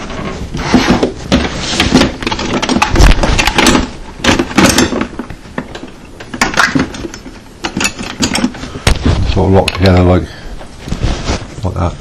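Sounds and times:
hand tools clattering: 0:01.8 - 0:08.8.

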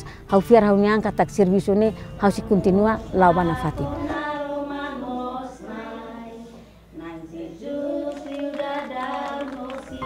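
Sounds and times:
children and women singing: 0:02.2 - 0:10.0.

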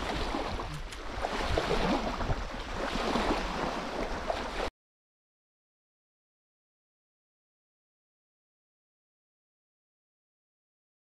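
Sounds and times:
wind buffeting microphone: 0:00.0 - 0:04.6
water lapping: 0:00.0 - 0:04.7.

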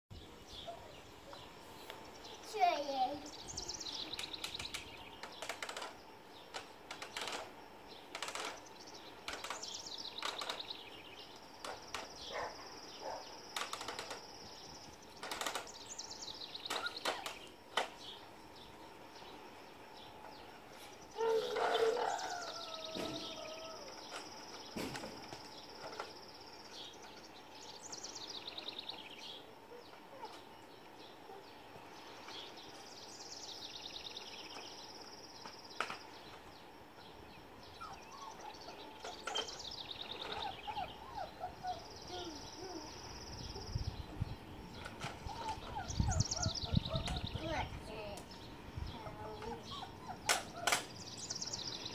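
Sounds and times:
faint squeaks: 0:20.7 - 0:26.2.

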